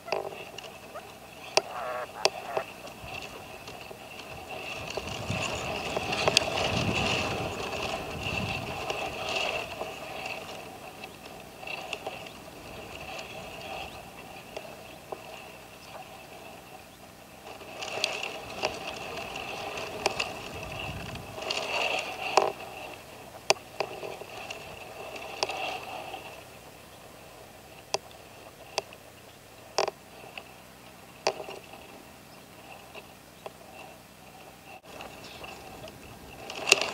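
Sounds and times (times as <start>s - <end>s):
partridge calling harsh notes: 0.8s - 3.5s.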